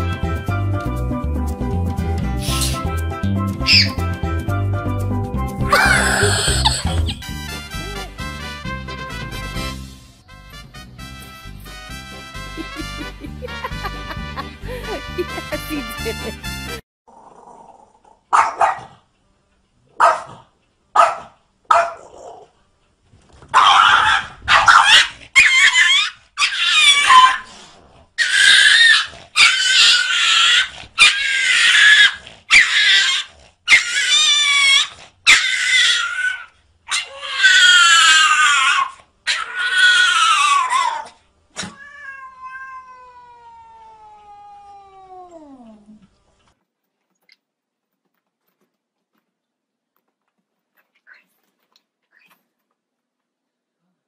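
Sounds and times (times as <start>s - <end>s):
cat yowling: 3.7s - 3.9s, 5.7s - 7.0s, 28.2s - 45.9s.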